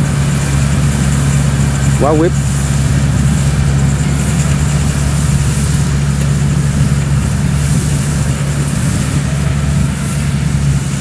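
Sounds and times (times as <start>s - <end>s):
combine harvester engine running: 0.0s - 11.0s.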